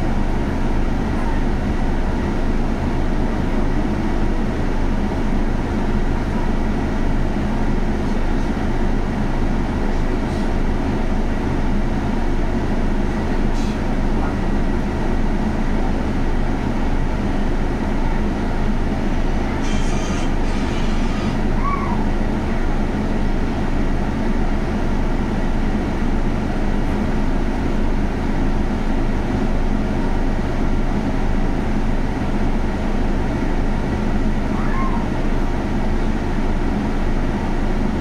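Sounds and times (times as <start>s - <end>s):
bus engine drone: 0.0s - 38.0s
brief air hiss: 19.6s - 21.3s.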